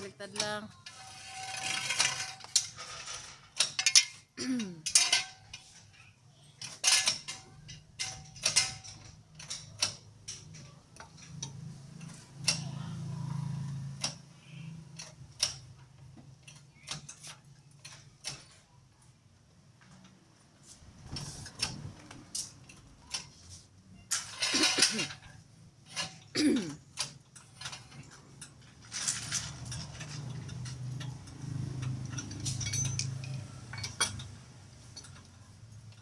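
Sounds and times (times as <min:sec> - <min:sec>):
hand tools clinking on metal: 0:00.0 - 0:06.0, 0:06.6 - 0:12.8, 0:24.0 - 0:36.0.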